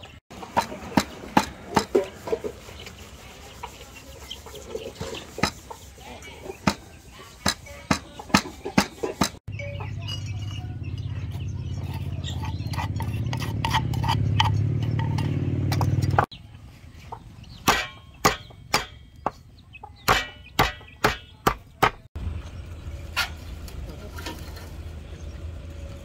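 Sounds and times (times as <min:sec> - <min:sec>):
cleaver chopping on wooden block: 0:17.7 - 0:19.0, 0:20.1 - 0:22.1.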